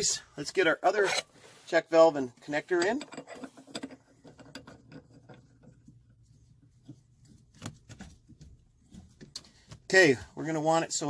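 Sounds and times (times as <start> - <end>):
light metal scraping: 0.8 - 7.0.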